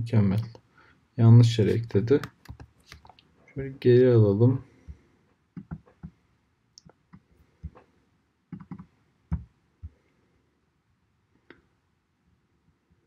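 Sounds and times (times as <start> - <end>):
mouse and keyboard clicks: 2.2 - 3.2, 5.6 - 6.1, 8.5 - 9.5.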